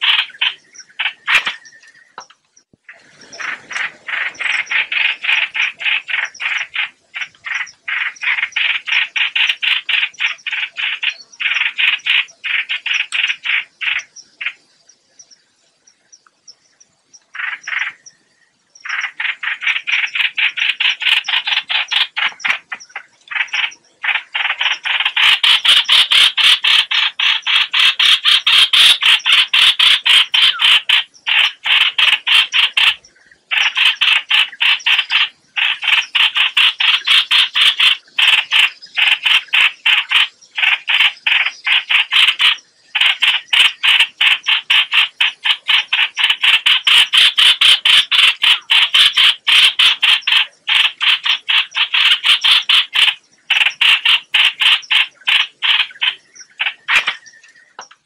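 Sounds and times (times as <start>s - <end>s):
bird chattering distress calls: 0.0s - 1.8s, 18.8s - 58.0s.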